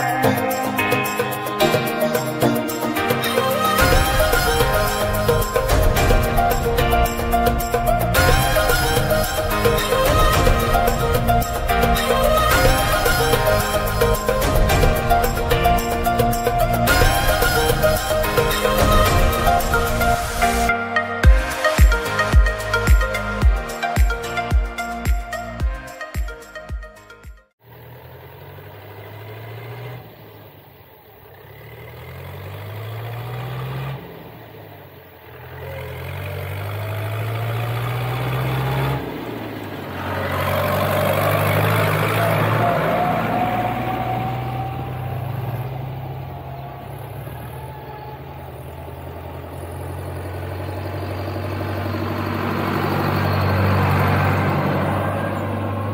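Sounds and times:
tractor diesel engine: 0.0 - 25.6, 27.6 - 55.9
thin rising whine: 40.5 - 55.9.

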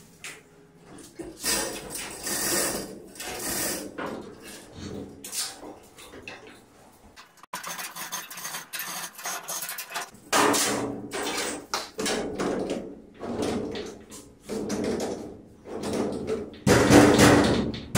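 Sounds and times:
chain rattling through hoist: 7.6 - 10.1.

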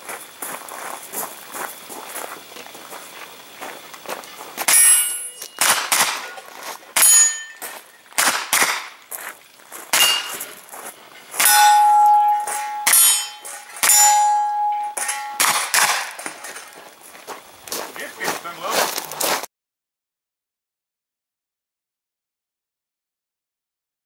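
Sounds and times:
loud metallic clangs ringing: 4.7 - 6.3, 7.0 - 8.8, 9.9 - 10.6, 11.3 - 16.8.

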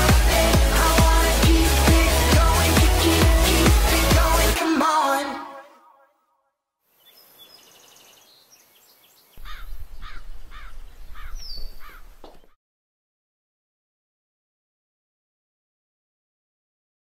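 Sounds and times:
music: 0.0 - 5.7
bird of prey calling: 7.0 - 12.6.

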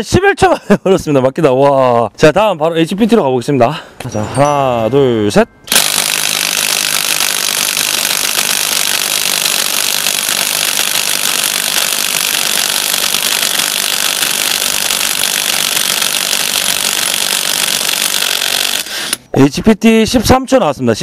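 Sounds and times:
impact wrench hammering: 5.7 - 19.3.

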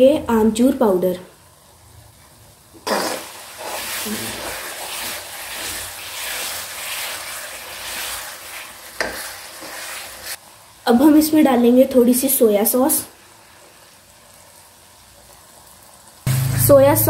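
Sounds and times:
masala sizzling in a pan: 0.1 - 17.0
ladle stirring with swishing strokes: 2.9 - 10.4.

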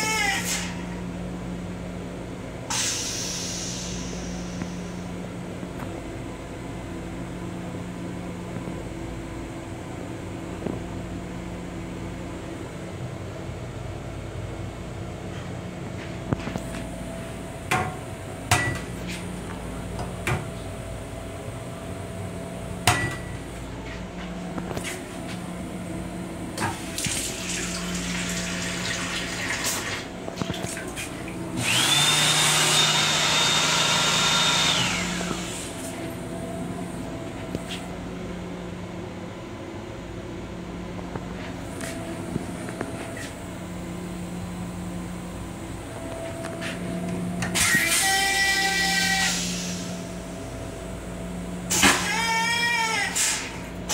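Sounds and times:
faucet running water: 27.0 - 30.1
hand dryer blowing: 31.6 - 35.8.

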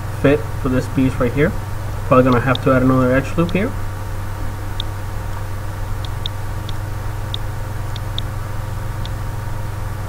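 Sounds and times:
low electrical hum: 0.0 - 10.0
computer mouse clicking: 6.0 - 8.3.

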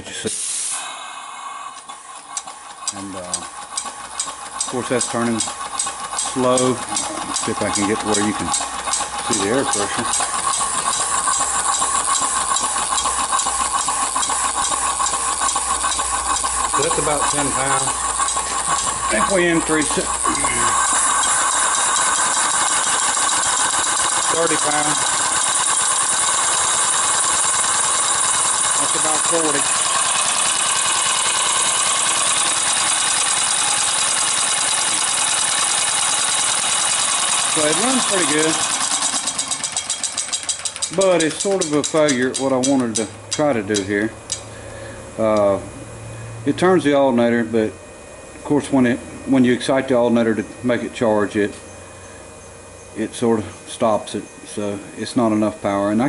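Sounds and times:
air engine exhaust hiss: 0.0 - 3.3
air engine hissing: 0.0 - 47.6
engine clatter: 1.0 - 44.5.

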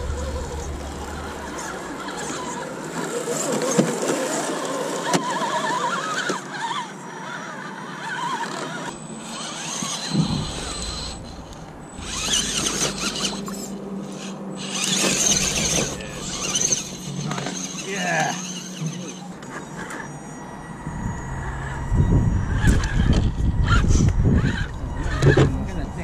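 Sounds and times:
low rumble: 0.0 - 3.0, 10.0 - 17.4, 20.4 - 26.0
toy car electric motors whining: 0.0 - 26.0
thump: 10.1 - 13.1.

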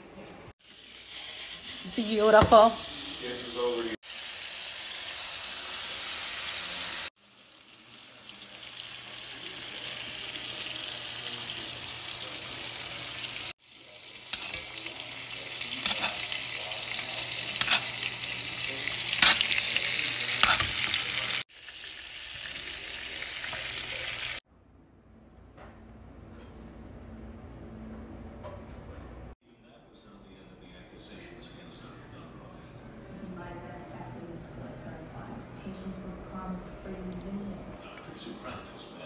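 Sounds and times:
steak sizzling in skillet: 0.6 - 24.4.

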